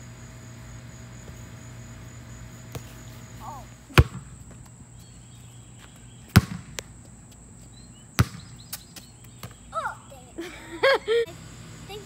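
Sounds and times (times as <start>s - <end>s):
soccer ball thumps: 2.6s - 3.0s, 3.9s - 4.6s, 6.3s - 6.9s, 8.2s - 9.6s.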